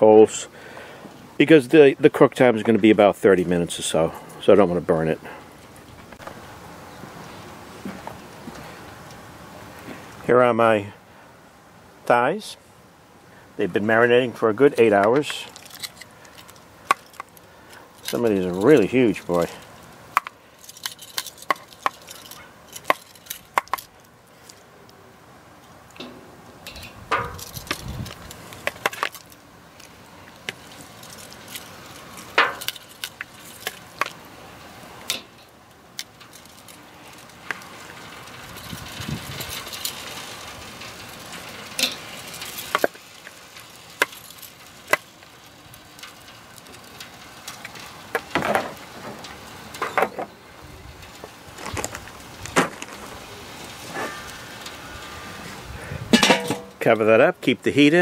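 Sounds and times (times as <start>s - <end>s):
wind rumble on microphone: 26.8s - 28.4s, 38.4s - 39.6s, 55.6s - 56.2s.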